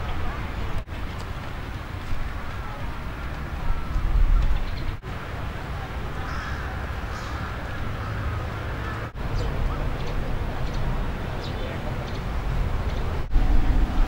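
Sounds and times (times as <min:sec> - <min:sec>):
faint distant voices: 0:00.0 - 0:14.0
birds chirping: 0:01.7 - 0:05.0, 0:06.2 - 0:14.0
steady low rumble: 0:09.0 - 0:14.0.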